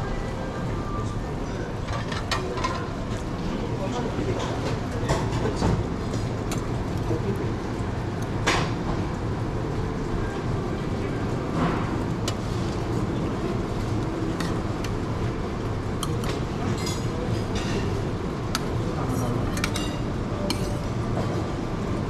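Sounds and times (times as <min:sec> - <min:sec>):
restaurant background hum: 0:00.0 - 0:22.0
metal utensils clinking on dishes: 0:01.8 - 0:02.9, 0:16.0 - 0:18.0, 0:19.0 - 0:21.0.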